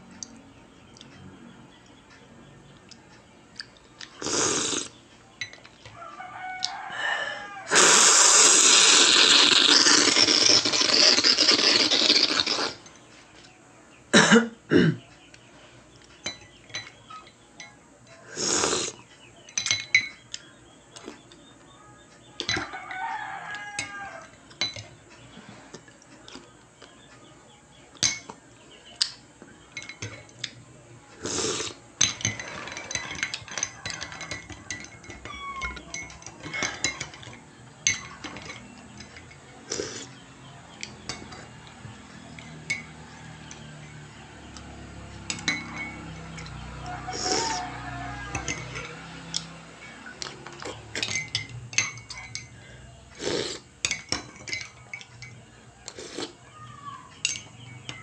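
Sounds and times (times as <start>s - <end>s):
teaspoon clinking against mug: 19.4s - 20.2s, 31.4s - 39.9s, 45.3s - 46.6s, 48.3s - 48.9s, 50.5s - 52.5s, 53.8s - 55.4s, 57.2s - 58.0s.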